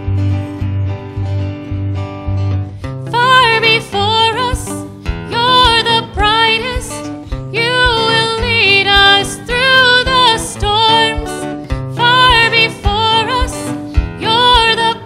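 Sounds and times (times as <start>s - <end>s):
strummed acoustic guitar: 0.0s - 15.0s
girl singing into a microphone: 3.0s - 15.0s.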